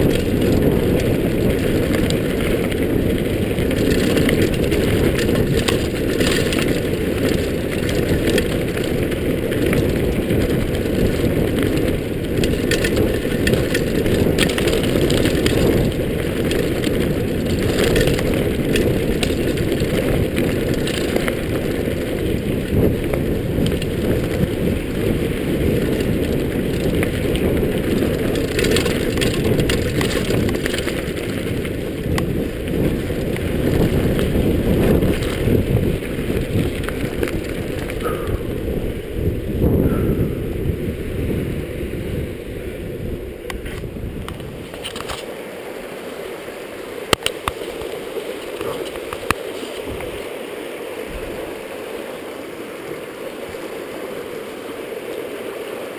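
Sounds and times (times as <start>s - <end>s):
tyres crunching over stones: 0.0s - 24.6s, 25.6s - 38.6s, 43.5s - 45.4s, 47.1s - 50.4s
bike rattling clicks: 0.0s - 39.0s, 43.4s - 45.3s
wind buffeting microphone: 0.0s - 45.3s, 46.8s - 55.9s.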